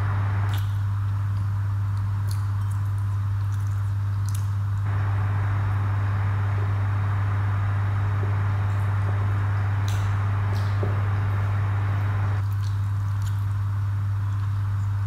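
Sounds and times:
steady low hum: 0.0s - 15.0s
chewing: 0.5s - 4.8s, 12.4s - 15.0s.

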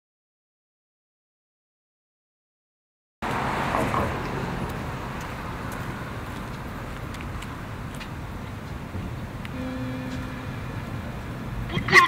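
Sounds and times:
road traffic hum: 3.2s - 12.0s.

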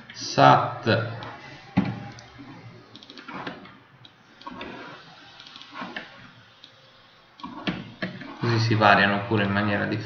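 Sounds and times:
computer keyboard keystrokes: 2.9s - 3.3s.

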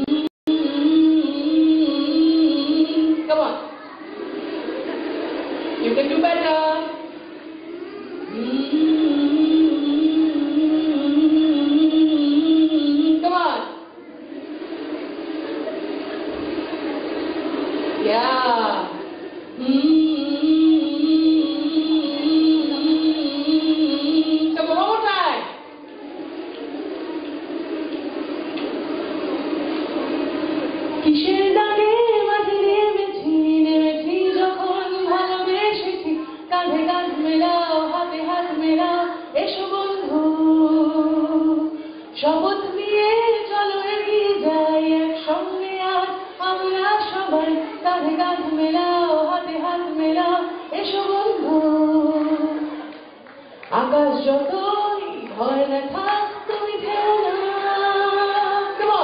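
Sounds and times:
woman singing into a microphone: 0.0s - 3.6s, 8.3s - 13.9s, 18.0s - 25.5s, 31.0s - 53.1s, 53.7s - 59.0s.

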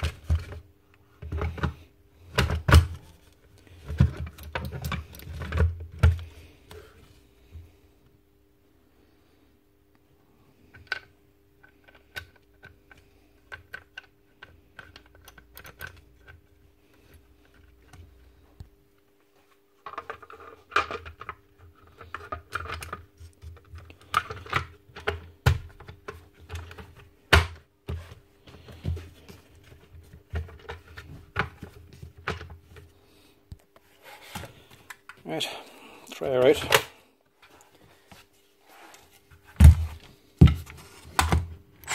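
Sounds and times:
faint steady hum: 0.0s - 41.9s.

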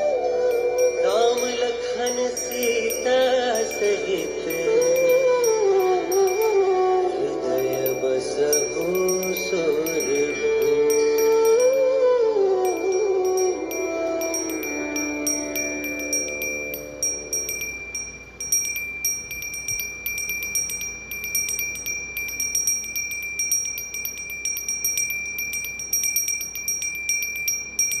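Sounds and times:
devotional music: 0.0s - 18.8s
bell rung rapidly: 0.8s - 6.6s, 7.6s - 11.8s, 12.8s - 28.0s.

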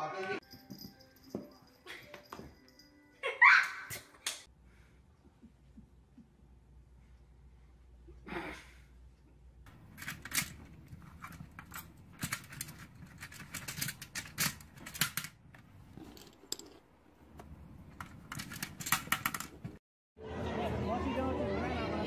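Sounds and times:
plastic discs clicking and clattering: 9.7s - 16.8s, 17.4s - 19.8s.

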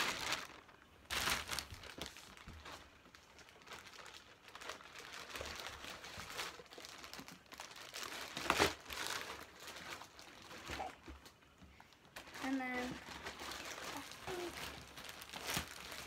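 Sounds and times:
bag rustling and crinkling: 0.0s - 11.5s, 12.1s - 16.0s.

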